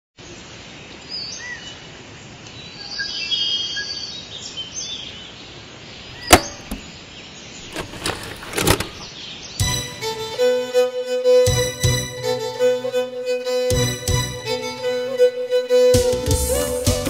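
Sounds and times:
steady outdoor hiss: 0.2s - 17.0s
cassette deck key clack: 6.2s - 6.9s, 7.6s - 9.1s.

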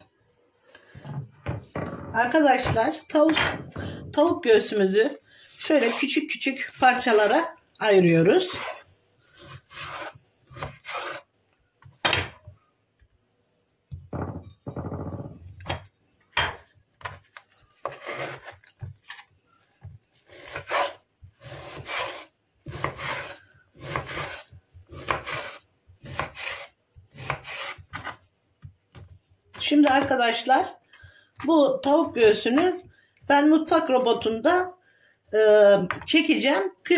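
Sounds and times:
knife slicing meat on wooden board: 9.4s - 11.2s, 20.3s - 28.2s.

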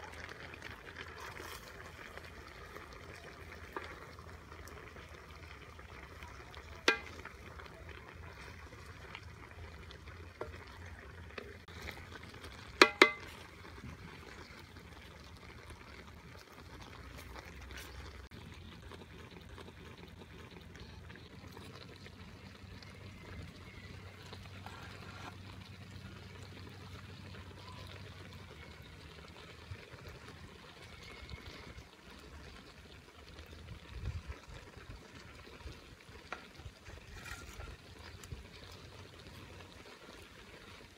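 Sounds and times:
curry bubbling in a wok: 0.0s - 40.9s
utensil clinking on metal wok: 12.8s - 13.4s.

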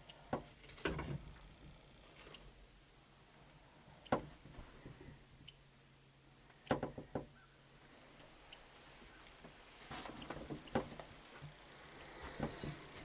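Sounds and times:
faint sharp clicks and knocks: 6.4s - 7.4s, 9.2s - 13.0s.

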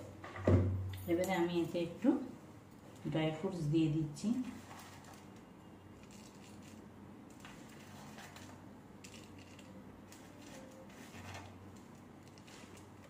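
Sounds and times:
dry fruit clicks and rustles: 6.0s - 13.0s.

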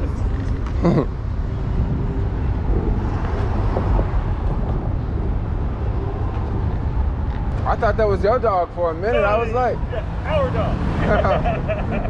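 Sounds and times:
wind on microphone: 0.0s - 8.0s.

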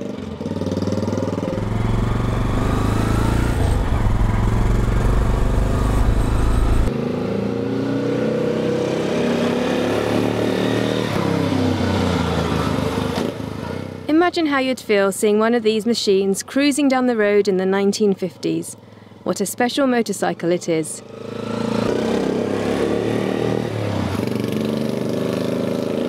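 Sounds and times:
motorcycle engine running: 0.0s - 6.9s
low wind rumble: 1.6s - 6.9s.

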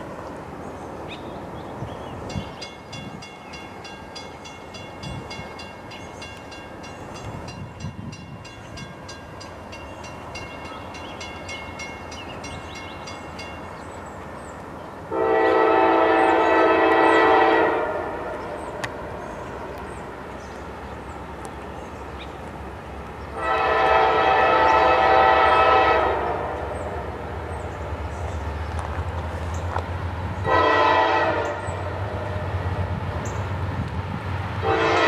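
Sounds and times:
crossing bell ringing: 2.3s - 14.0s
train horn chord: 15.1s - 18.6s, 23.4s - 27.2s, 30.4s - 32.4s, 34.6s - 35.0s.

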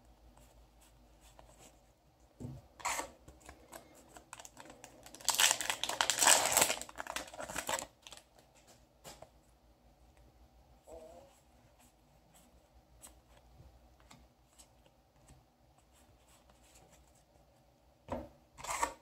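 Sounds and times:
foil wrapper crinkling and tearing: 4.2s - 8.3s.

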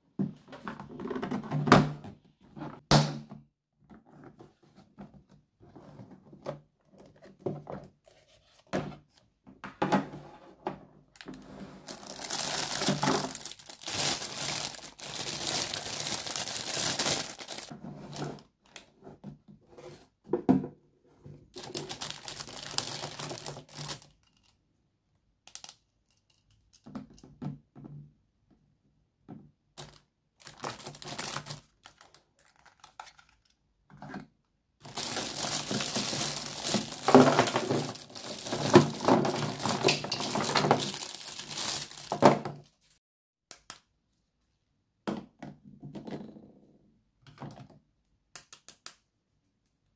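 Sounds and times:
plastic packaging crinkling: 11.8s - 17.7s, 21.6s - 24.5s, 29.8s - 33.4s, 34.8s - 42.9s
plastic toy clicks and knocks: 25.4s - 27.2s.

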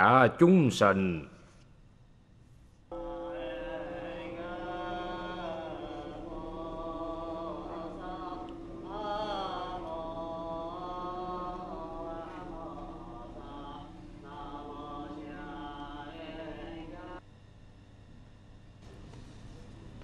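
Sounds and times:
monks chanting: 2.9s - 17.2s
sustained drone: 2.9s - 18.3s.

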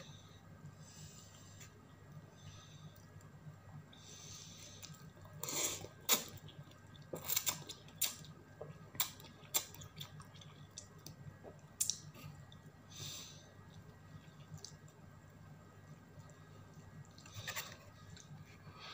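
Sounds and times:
low steady hum: 0.0s - 18.9s
wet mouth clicks and smacks: 9.0s - 12.1s.

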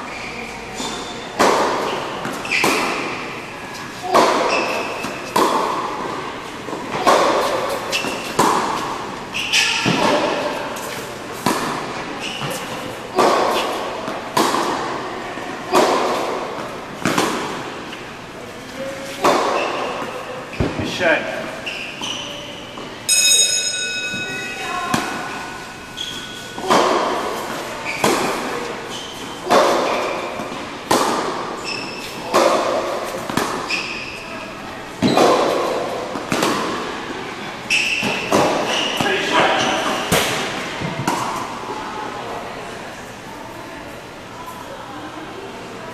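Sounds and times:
shoes squeaking on court: 0.0s - 14.3s, 17.8s - 20.9s, 21.5s - 22.9s, 24.0s - 36.6s, 37.7s - 40.1s
tennis ball strikes: 1.4s - 3.2s, 4.0s - 6.2s, 6.9s - 9.0s, 11.4s - 14.9s, 15.7s - 17.7s, 19.2s - 19.9s, 26.6s - 28.5s, 29.4s - 31.5s, 32.1s - 33.8s, 35.0s - 36.8s, 38.0s - 39.0s.

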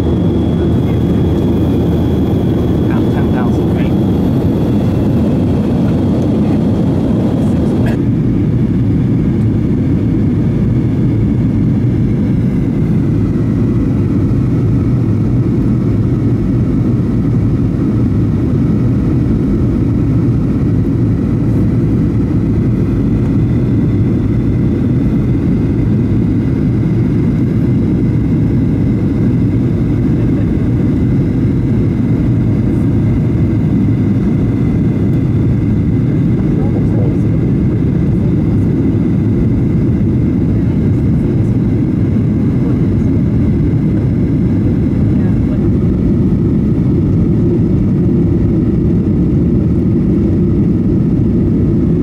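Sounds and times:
airplane cabin drone: 0.0s - 52.0s.

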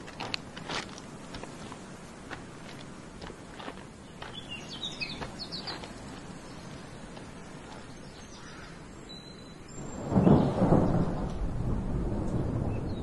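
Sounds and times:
thunder rumbling: 9.8s - 13.0s.

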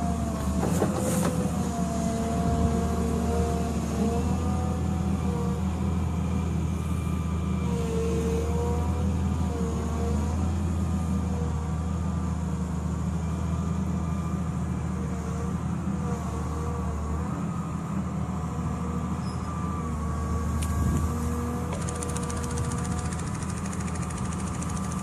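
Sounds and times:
diesel engine running: 8.5s - 25.0s
fast even rattle: 21.7s - 25.0s.

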